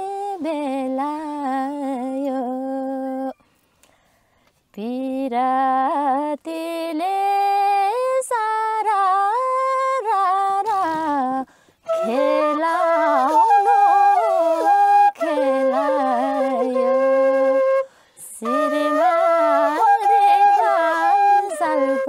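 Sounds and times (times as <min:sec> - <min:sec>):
bamboo flute folk melody: 0:11.8 - 0:22.0.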